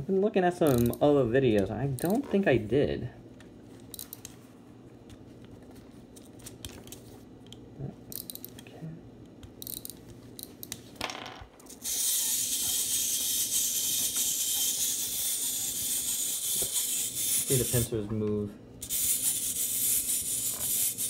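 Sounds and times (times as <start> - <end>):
clockwork gearbox whirring: 11.7 - 17.9.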